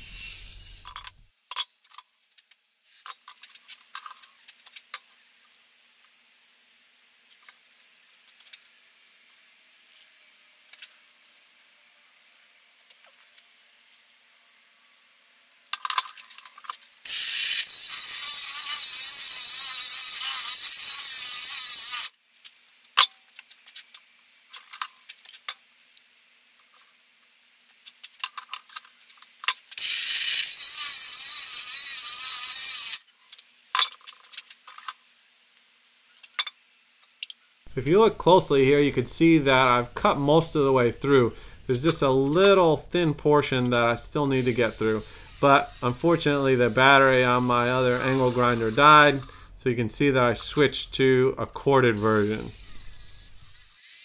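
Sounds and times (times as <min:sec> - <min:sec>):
angle grinder cutting steel: 0:44.4 - 0:49.4.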